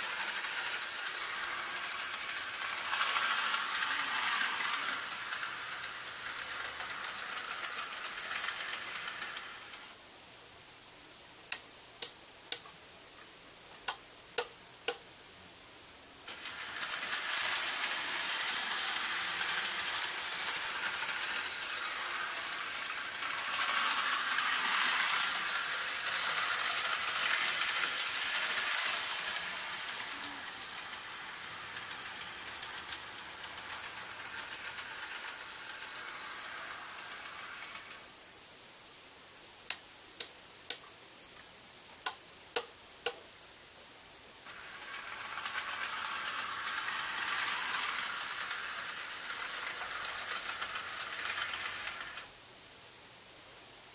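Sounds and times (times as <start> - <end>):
model train rattling on track: 0.0 - 10.0, 16.3 - 38.1, 44.4 - 52.3.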